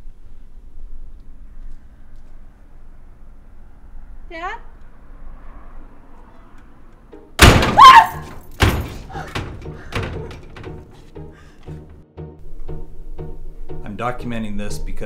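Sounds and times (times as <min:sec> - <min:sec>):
loud slam-like impact hits: 0:07.4 - 0:08.0.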